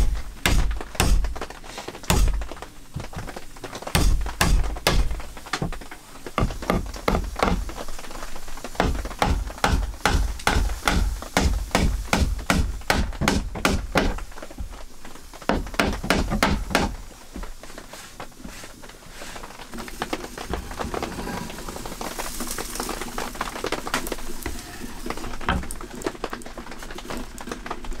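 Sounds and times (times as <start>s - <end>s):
hammer driving nails into wood: 0.0s - 2.5s, 4.0s - 5.7s, 8.8s - 14.2s.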